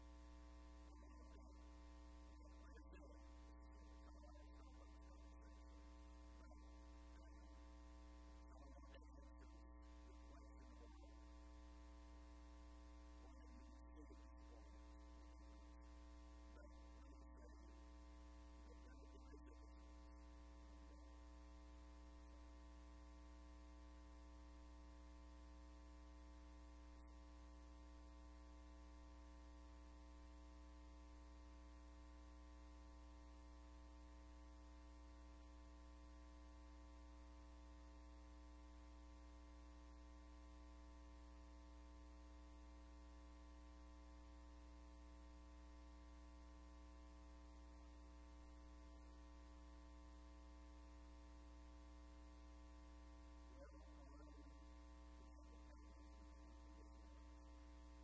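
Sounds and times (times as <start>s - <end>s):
faint indistinct sounds: 0.0s - 25.7s
low electrical mains hum: 0.0s - 58.0s.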